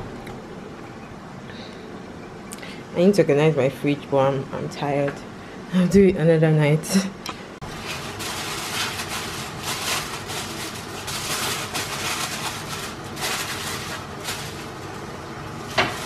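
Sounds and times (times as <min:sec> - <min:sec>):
aluminium foil crinkling: 0:07.7 - 0:16.0.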